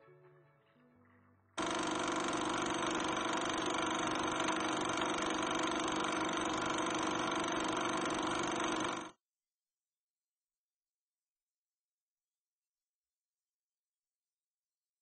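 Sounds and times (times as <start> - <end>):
mechanical whirring with low hum: 1.6 - 9.1.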